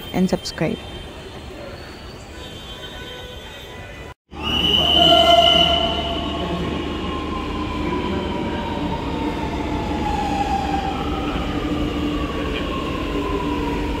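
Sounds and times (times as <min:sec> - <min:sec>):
wheels rumbling on rail: 0:04.8 - 0:14.0.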